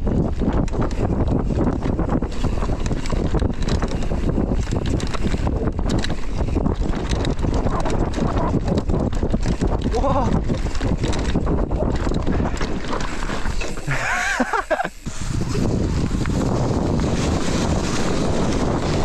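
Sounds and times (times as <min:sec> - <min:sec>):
small rattles and knocks: 0:00.0 - 0:14.9
wind buffeting microphone: 0:00.0 - 0:19.0.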